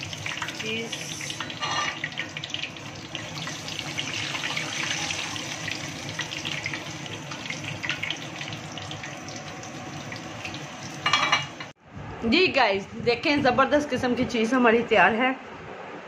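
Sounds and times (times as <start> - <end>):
deep-frying sizzle and crackle: 0.0 - 11.8.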